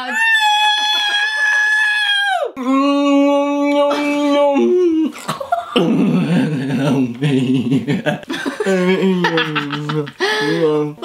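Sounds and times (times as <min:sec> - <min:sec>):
voices: 0:00.0 - 0:11.0
laughter: 0:07.2 - 0:10.8.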